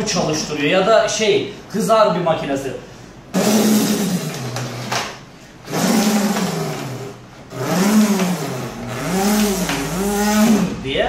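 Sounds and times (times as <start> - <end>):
man imitating motor sounds: 7.6 - 11.0.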